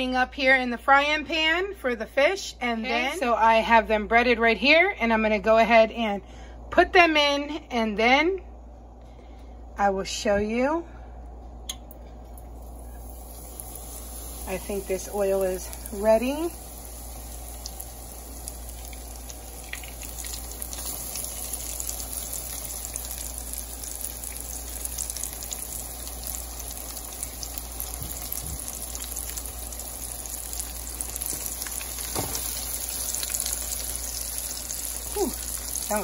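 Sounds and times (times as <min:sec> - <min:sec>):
fish sizzling in hot oil: 0:12.5 - 0:36.0.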